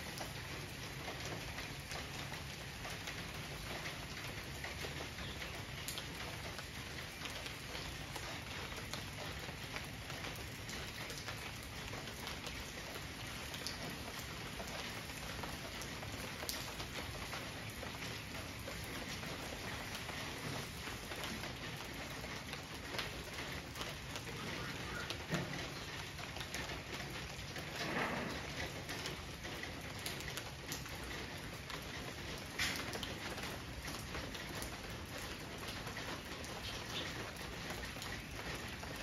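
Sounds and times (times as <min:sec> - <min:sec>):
steady rain on foliage: 0:00.0 - 0:39.0.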